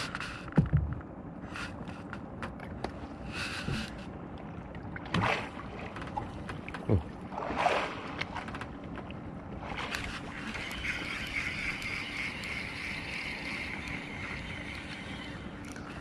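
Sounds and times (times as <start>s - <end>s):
water washing around hull: 0.0s - 16.0s
knocks and clicks of gear: 0.5s - 1.1s, 2.1s - 3.0s.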